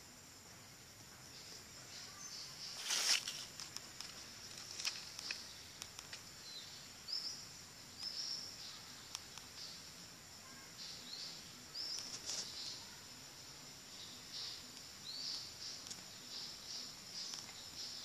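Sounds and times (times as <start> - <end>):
high insect hum: 0.0 - 18.0
rustling: 2.7 - 6.2, 12.0 - 12.6
faint clicks: 3.2 - 6.3, 9.0 - 9.6, 17.2 - 17.6.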